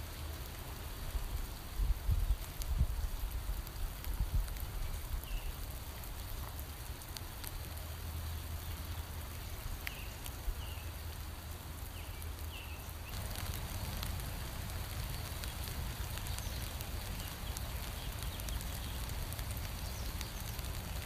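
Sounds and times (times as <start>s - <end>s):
rain falling on leaves: 0.0s - 21.0s
water drips: 3.4s - 21.0s.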